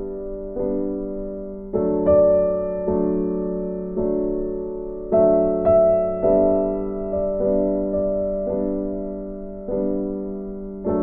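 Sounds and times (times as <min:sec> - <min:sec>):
gentle piano chords: 0:00.0 - 0:11.0.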